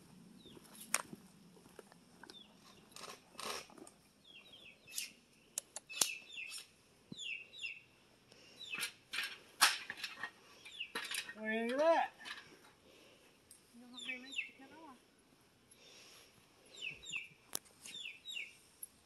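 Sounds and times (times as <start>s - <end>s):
small birds chirping: 0.3s - 0.9s, 1.6s - 3.5s, 4.1s - 9.0s, 10.4s - 11.7s, 13.8s - 15.0s, 15.7s - 18.9s.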